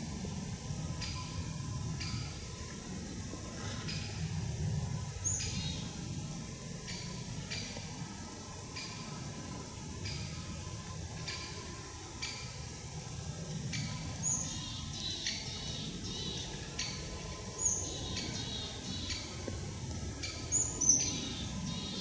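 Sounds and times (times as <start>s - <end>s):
low background noise: 0.0s - 22.0s
small birds calling: 13.6s - 22.0s.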